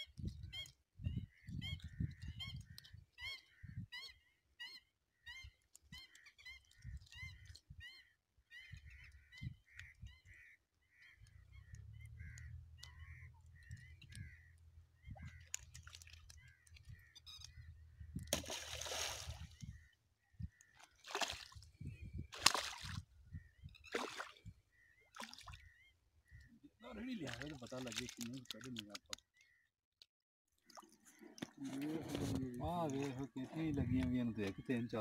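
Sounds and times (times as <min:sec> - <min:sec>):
birds calling: 0:00.0 - 0:29.7, 0:30.6 - 0:35.0
water splashing: 0:12.2 - 0:19.7, 0:20.7 - 0:21.7, 0:22.3 - 0:23.1, 0:23.9 - 0:24.5, 0:25.1 - 0:25.7, 0:26.9 - 0:29.2, 0:30.6 - 0:34.6.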